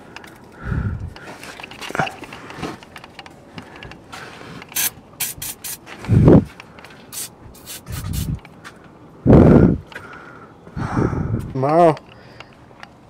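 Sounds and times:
aerosol spray can hissing: 4.8s - 5.8s, 7.1s - 8.4s.

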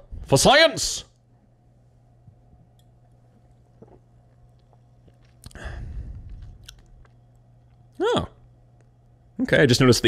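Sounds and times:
person gulping soda: 3.4s - 5.6s
loud rush of breath: 5.6s - 6.3s.

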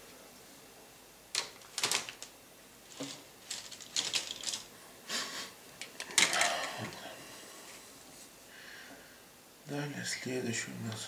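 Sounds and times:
plastic sprues clicking and rattling: 1.3s - 2.3s, 2.9s - 4.7s, 5.8s - 6.8s
plastic rustling: 1.3s - 4.8s.

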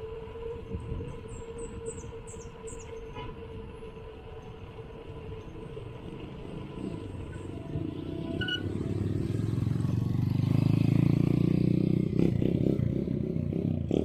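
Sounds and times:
wind noise: 0.0s - 4.1s
constant hum: 0.0s - 10.3s.

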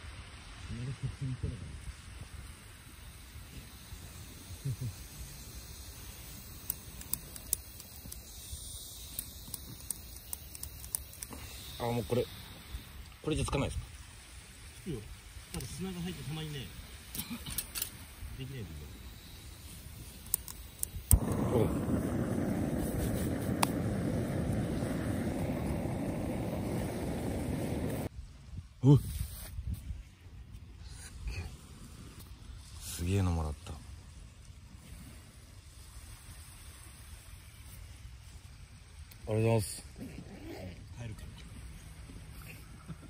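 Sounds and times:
gas stove burner roaring: 21.1s - 28.1s.

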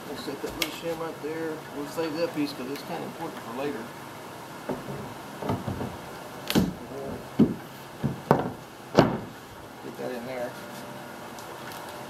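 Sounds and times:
wooden door panel thumps: 4.7s - 9.4s.

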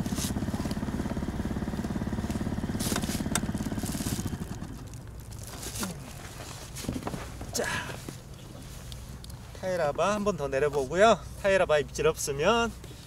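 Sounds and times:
motor engine pulsing hum: 0.0s - 9.5s.

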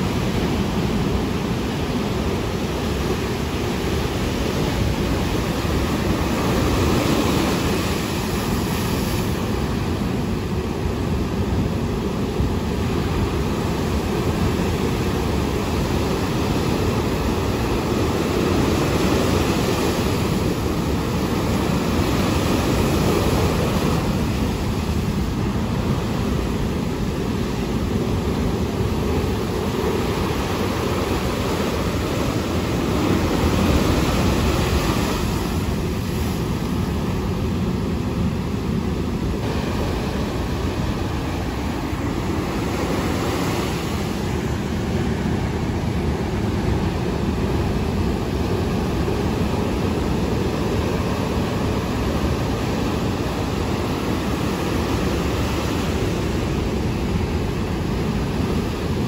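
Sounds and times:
surf breaking over rocks: 13.1s - 58.2s.

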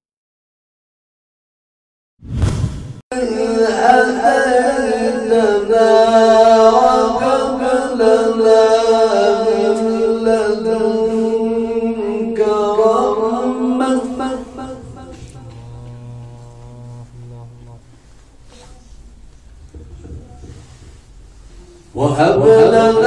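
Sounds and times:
man reciting melodically into microphone: 3.1s - 18.0s, 21.9s - 23.0s.

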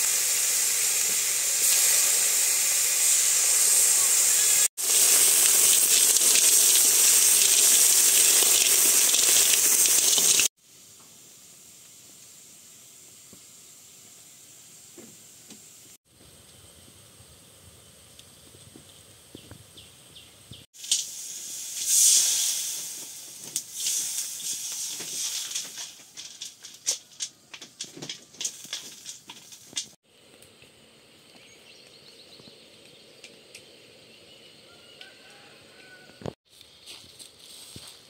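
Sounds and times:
oil crackling and spitting: 0.0s - 10.5s, 20.8s - 30.0s
food sizzling in hot oil: 0.0s - 16.0s, 20.7s - 30.0s.

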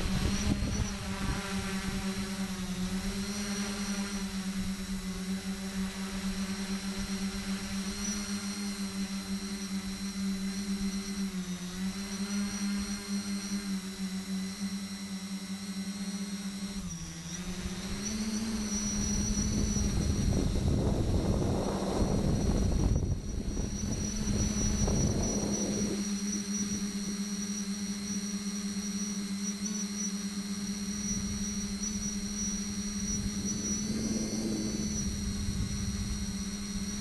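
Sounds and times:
wind on microphone: 0.0s - 3.1s, 17.7s - 26.1s, 31.1s - 37.0s
drone motors buzzing: 0.0s - 37.0s.

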